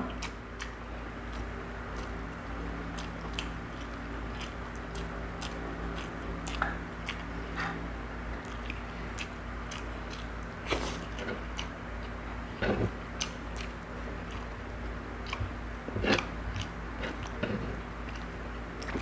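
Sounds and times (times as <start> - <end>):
chewing and lip smacks: 0.1 - 7.6, 8.3 - 15.6, 16.2 - 19.0.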